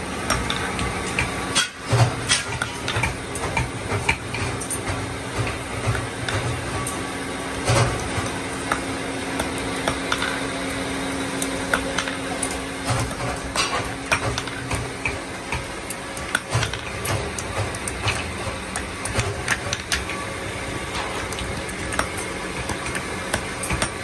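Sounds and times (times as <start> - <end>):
hammer striking hot iron: 8.6 - 10.5.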